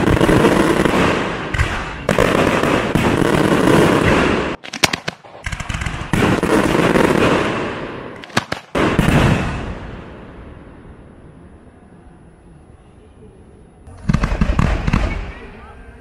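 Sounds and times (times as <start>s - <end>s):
fireworks bursting: 0.0s - 11.0s, 13.9s - 16.0s
rapid crackling pops: 4.0s - 7.4s, 8.2s - 9.3s.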